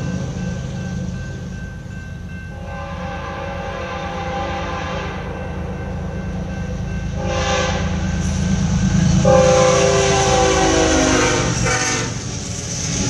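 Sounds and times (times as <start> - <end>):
diesel locomotive rumble: 0.0 - 13.0
train horn blasts: 2.5 - 6.2, 7.1 - 8.1, 9.1 - 12.3.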